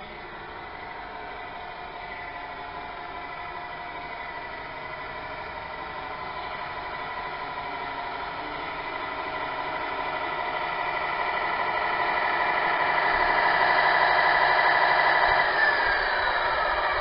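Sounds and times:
toy truck mechanical whine: 0.0s - 17.0s
pump winding down: 5.3s - 17.0s.

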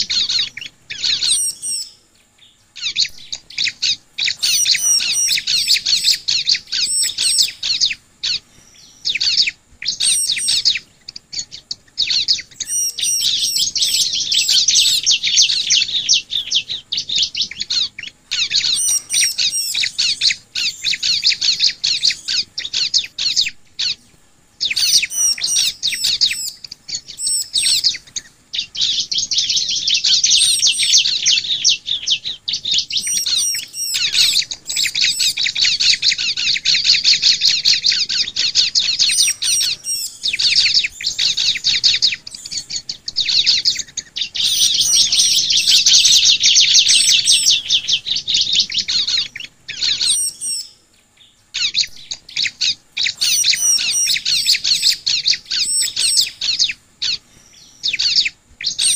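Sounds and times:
sharp high bird chirps: 0.0s - 24.0s, 24.6s - 58.9s
bird trilling song: 0.0s - 58.9s.

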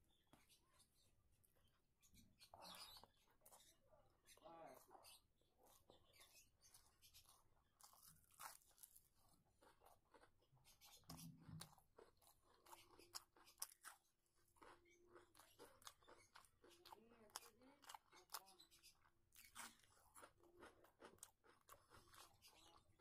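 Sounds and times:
person chewing crunchy food: 5.6s - 23.0s.

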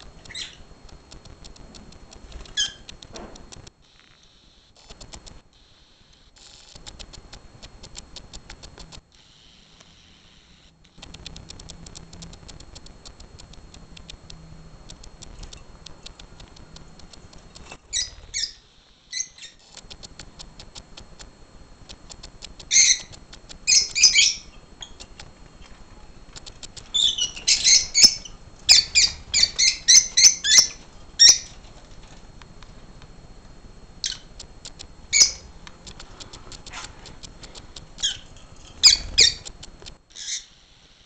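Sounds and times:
faint rapid clicking: 0.0s - 3.8s, 4.8s - 5.4s, 6.1s - 9.0s, 10.9s - 18.3s, 19.6s - 40.1s
lovebirds squawking: 22.7s - 23.1s, 23.7s - 24.5s, 26.8s - 31.6s, 35.1s - 35.5s, 38.0s - 39.5s.

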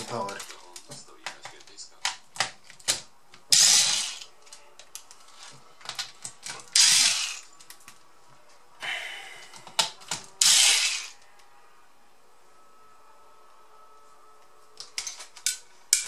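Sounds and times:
electric screwdriver whirring: 3.5s - 4.3s, 6.7s - 7.5s, 10.4s - 11.2s.

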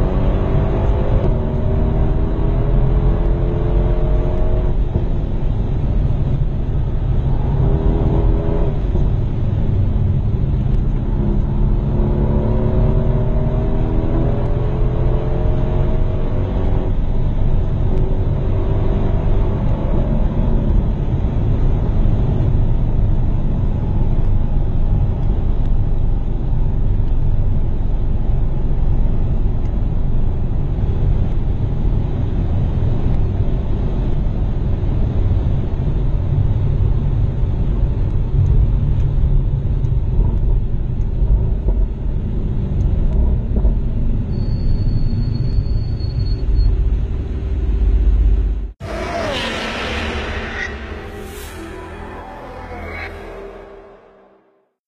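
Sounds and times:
car engine and road noise: 0.0s - 54.8s
brief high tone: 48.8s - 54.6s.

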